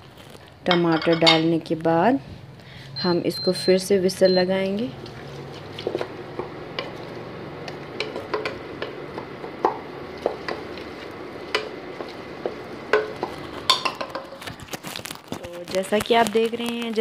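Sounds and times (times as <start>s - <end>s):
soft frying sizzle: 3.4s - 17.0s
spoon knocking and scraping pot: 7.7s - 14.4s.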